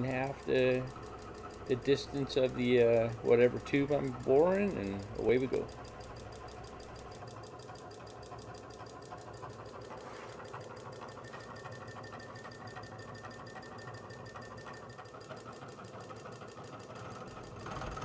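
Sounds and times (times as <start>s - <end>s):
milling machine cutting steel: 1.6s - 5.6s.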